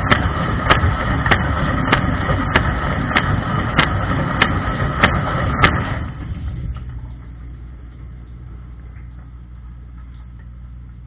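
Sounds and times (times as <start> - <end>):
water spraying: 0.0 - 7.2
dishwasher pump humming: 0.0 - 11.0.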